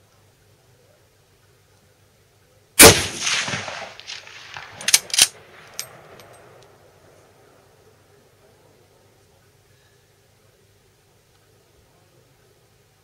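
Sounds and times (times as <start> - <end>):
rifle shot with echo: 2.8 - 6.7
rifle bolt metallic clicks: 4.5 - 6.4.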